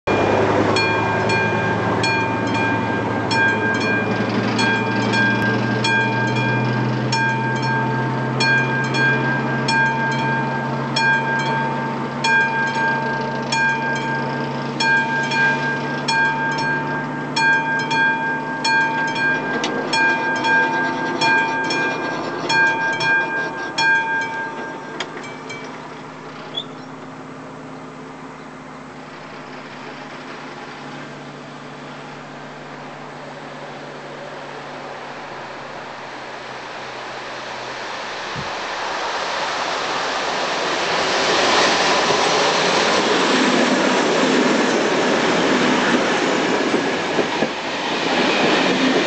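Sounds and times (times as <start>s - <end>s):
diesel locomotive engine hum: 0.0s - 49.0s
high ringing tone: 0.1s - 29.1s.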